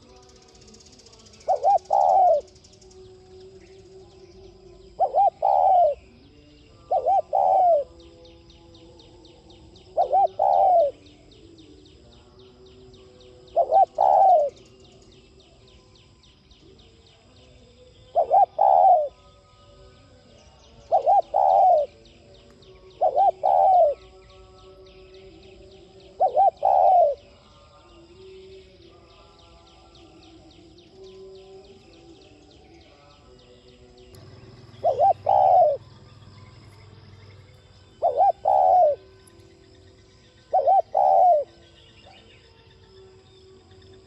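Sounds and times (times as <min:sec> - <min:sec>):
dove cooing: 0:01.1 - 0:02.9, 0:04.5 - 0:06.2, 0:06.8 - 0:08.1, 0:09.6 - 0:11.5, 0:13.4 - 0:15.0, 0:18.1 - 0:19.2, 0:20.8 - 0:24.2, 0:25.6 - 0:27.4, 0:34.2 - 0:36.9, 0:37.8 - 0:39.2, 0:40.4 - 0:42.2.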